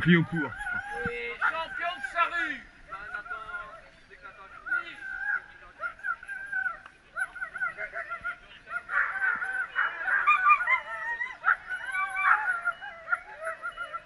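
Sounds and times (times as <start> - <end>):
dogs yelping and whining: 0.0 - 2.3, 4.6 - 14.0.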